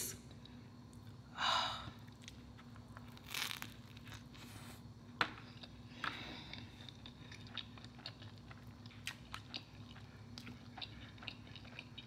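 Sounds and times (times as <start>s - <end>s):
food tearing and rustling: 2.7s - 4.7s.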